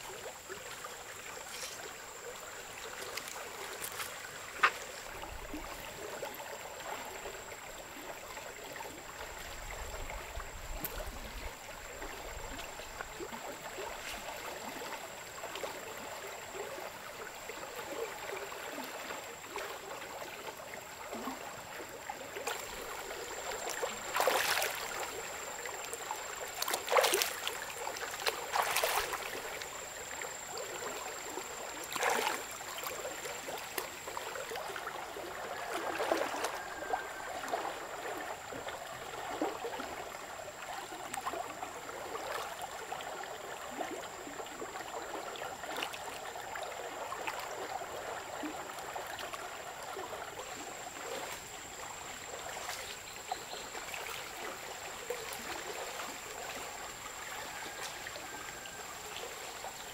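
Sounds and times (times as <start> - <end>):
river water flowing and lapping: 0.0 - 59.9
person splashing in water: 23.5 - 25.2, 26.5 - 29.4, 31.9 - 32.4.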